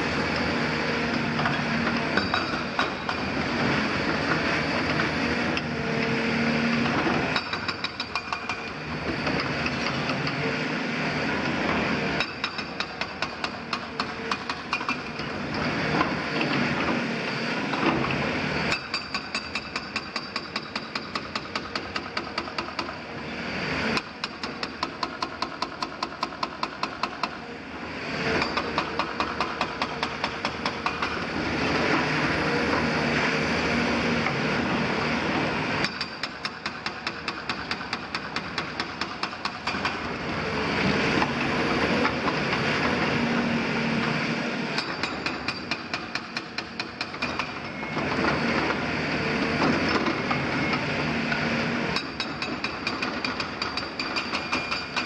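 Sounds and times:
hydraulic breaker pounding masonry: 0.2 - 23.0, 23.8 - 27.4, 28.2 - 33.1, 34.2 - 55.0
diesel engine under load: 39.9 - 45.5, 47.6 - 52.2.

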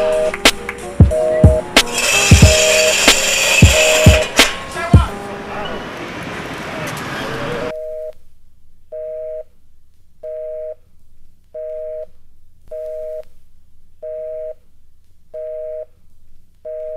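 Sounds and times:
telephone busy signal beeps: 14.0 - 14.6.

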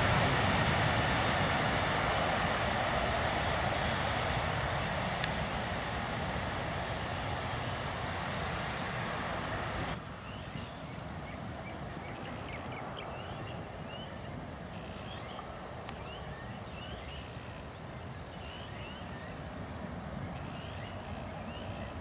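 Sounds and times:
distant jet airliner rumble: 0.0 - 22.0
birds chirping: 7.2 - 22.0.

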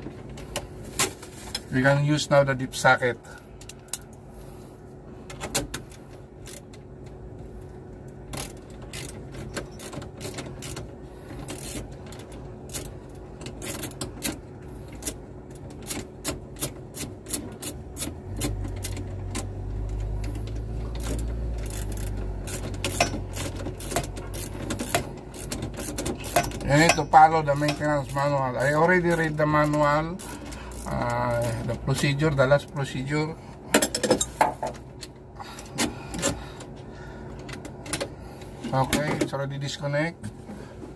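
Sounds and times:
low steady hum: 0.0 - 40.9
ratchet wrench clicking: 8.3 - 15.2, 15.8 - 31.7.

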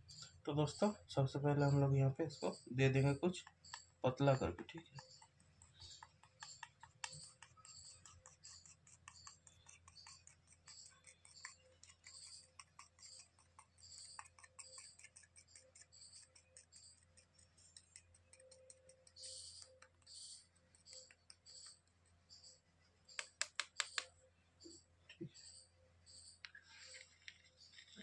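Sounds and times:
spoon ticking and scraping: 0.0 - 24.1.

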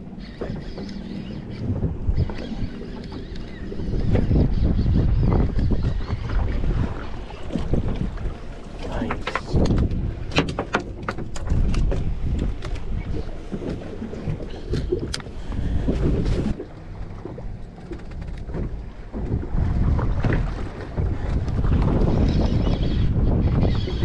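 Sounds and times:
water sloshing against hull: 0.0 - 24.0
wind buffeting microphone: 0.0 - 24.0
light clicks and knocks: 8.7 - 12.9.

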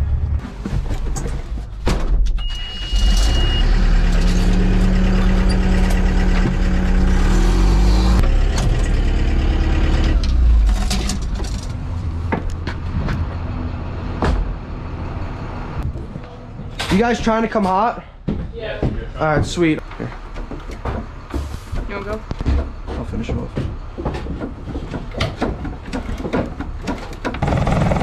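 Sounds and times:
high beep: 2.4 - 3.8
tractor engine droning: 2.4 - 17.3, 27.1 - 28.0.

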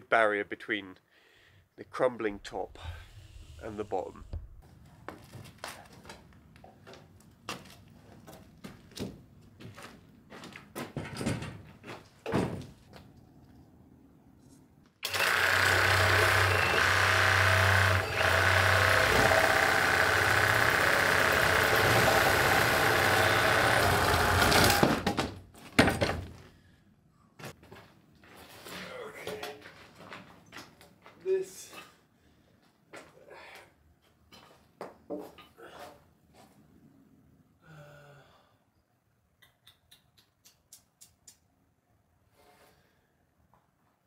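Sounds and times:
power saw cutting wood: 2.5 - 4.5, 15.0 - 25.0
wooden knocks and clunks: 4.2 - 5.3.

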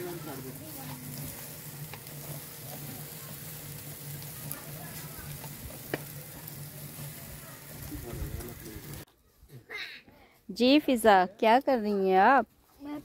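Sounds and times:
meat sizzling on a grill: 0.0 - 9.1.

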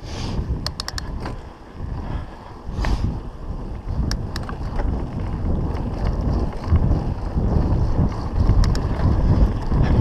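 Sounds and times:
bike rattling: 0.0 - 10.0
bike tyres rumbling: 0.0 - 10.0
wind buffeting microphone: 0.0 - 10.0
sharp clicks: 0.6 - 1.4, 4.0 - 4.7, 8.5 - 8.9.

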